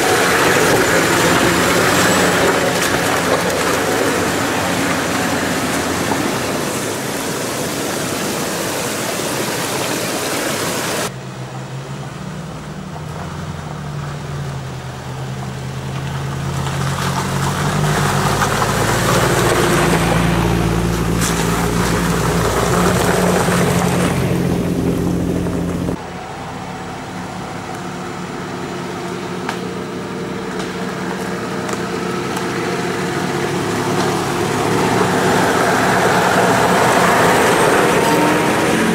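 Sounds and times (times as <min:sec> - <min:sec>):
vehicle crawling over rocks: 0:00.0 - 0:09.6, 0:15.0 - 0:26.0
rushing stream water: 0:00.0 - 0:11.1, 0:16.4 - 0:26.0, 0:30.8 - 0:38.9
off-road vehicle engine drone: 0:00.0 - 0:38.9.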